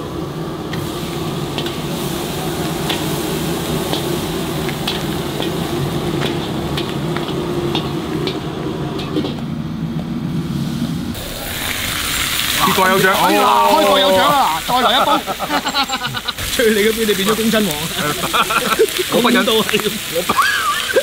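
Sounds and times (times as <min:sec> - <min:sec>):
wok stove roaring: 0:00.0 - 0:21.0
eel sizzling: 0:11.2 - 0:21.0.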